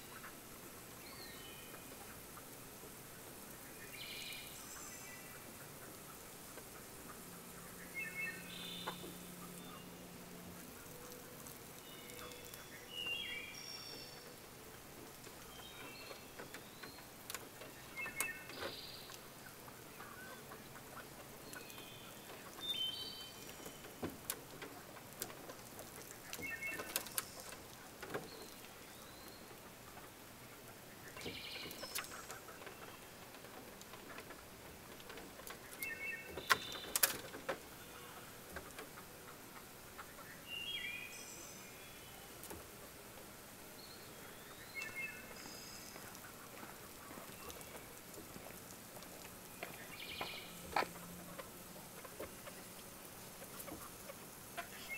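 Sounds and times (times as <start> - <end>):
hens chirping and peeping: 0.0 - 54.9.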